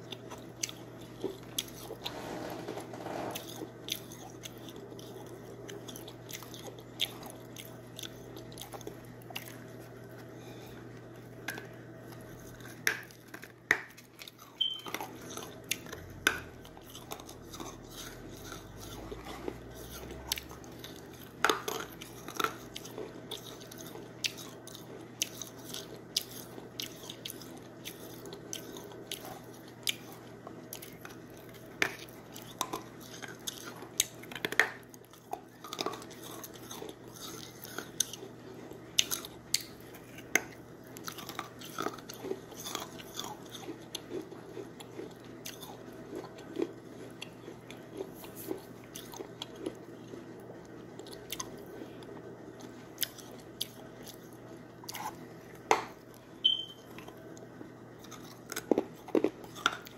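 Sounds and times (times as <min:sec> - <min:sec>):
person chewing: 0:00.0 - 0:59.9.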